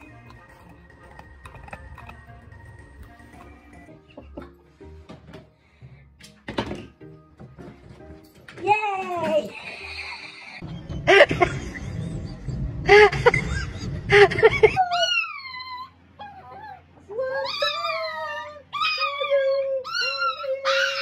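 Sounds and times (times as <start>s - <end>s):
dog whining and yipping: 14.8s - 21.0s
small dog howling: 14.9s - 21.0s.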